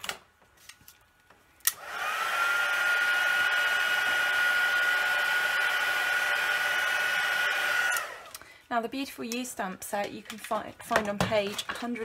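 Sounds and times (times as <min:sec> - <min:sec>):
heat tool fan whine: 0:01.6 - 0:08.4.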